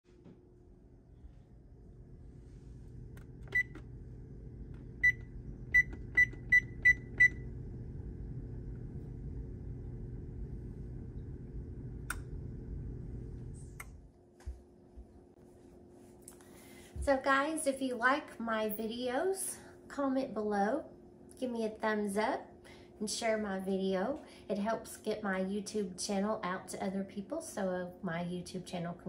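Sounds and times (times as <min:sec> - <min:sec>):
steady low hum: 0:00.1 - 0:29.0
control panel beeping: 0:03.4 - 0:03.8, 0:05.0 - 0:07.4.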